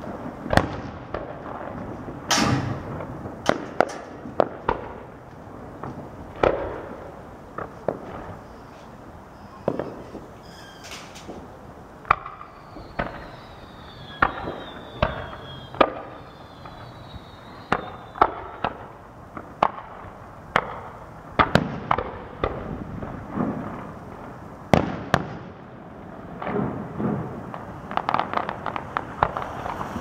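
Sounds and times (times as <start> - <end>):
fireworks bangs: 0.0 - 30.0
falling fireworks whistles: 7.6 - 19.1, 27.0 - 30.0.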